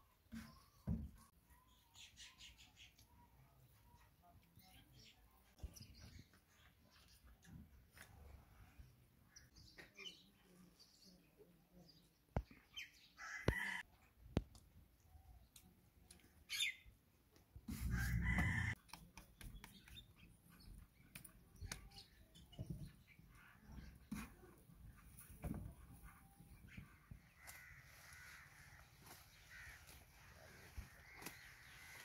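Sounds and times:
rooster crowing: 0:17.9 - 0:18.8.

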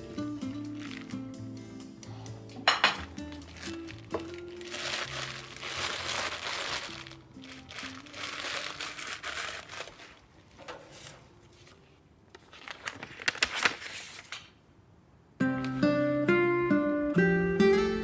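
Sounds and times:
soft background music: 0:00.0 - 0:12.0, 0:15.4 - 0:18.0
paper rustling and crinkling: 0:00.6 - 0:01.3, 0:03.1 - 0:14.5.

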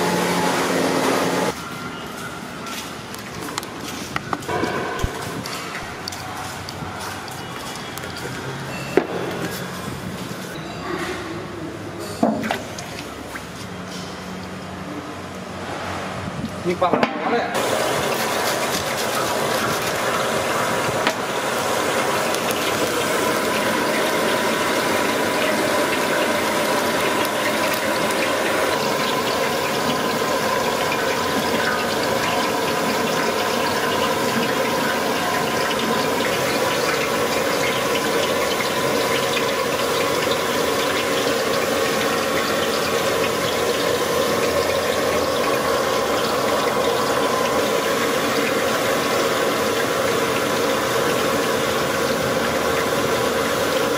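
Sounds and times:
gas burner rushing: 0:00.0 - 0:01.6, 0:17.6 - 0:53.9.

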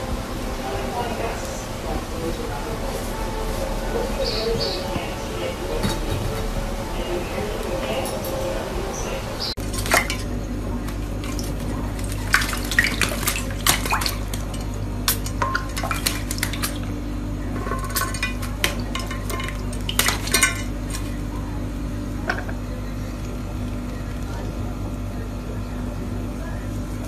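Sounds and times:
steady low hum: 0:00.0 - 0:27.0
bird splashing in water: 0:09.6 - 0:16.9.

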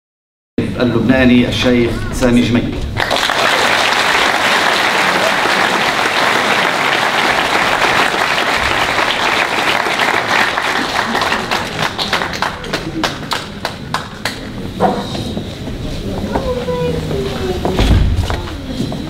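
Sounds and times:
audience applauding: 0:03.0 - 0:14.7.

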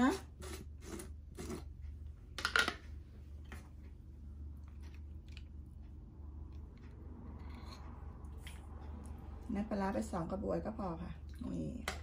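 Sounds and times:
ladle scraping in a jar: 0:00.0 - 0:01.7
low steady hum: 0:00.0 - 0:12.0.

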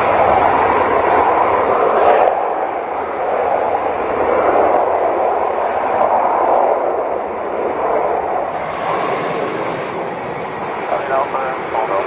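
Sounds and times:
jet engines roaring: 0:00.0 - 0:12.0.

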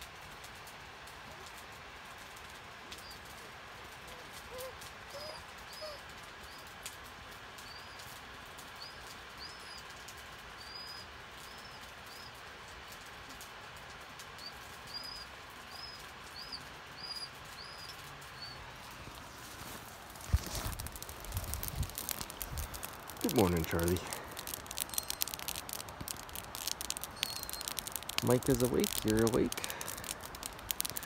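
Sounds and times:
bird chirping: 0:21.6 - 0:25.7, 0:26.6 - 0:31.0.

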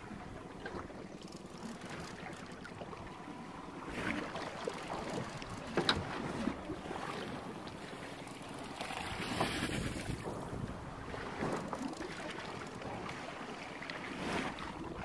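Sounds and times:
water sloshing against hull: 0:00.0 - 0:15.0
wind on microphone: 0:09.0 - 0:12.2.

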